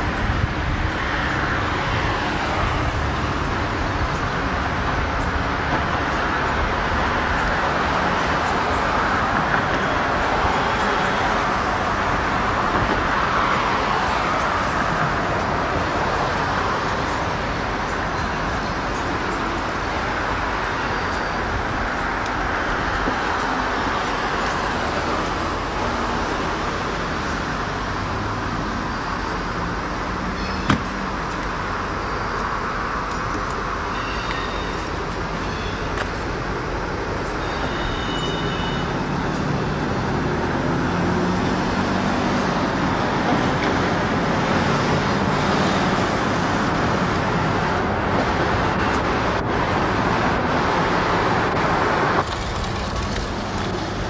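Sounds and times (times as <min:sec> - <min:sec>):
vehicle traffic rumble: 0:00.0 - 0:54.0.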